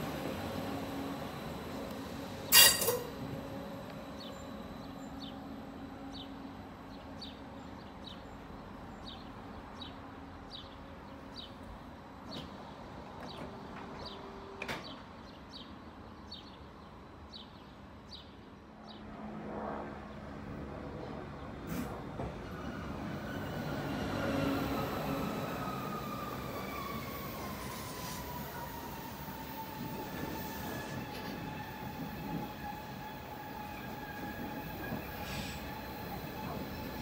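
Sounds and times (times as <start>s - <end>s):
electric train humming: 0.0s - 11.0s, 22.4s - 37.0s
approaching train rumble: 0.0s - 15.4s, 16.8s - 37.0s.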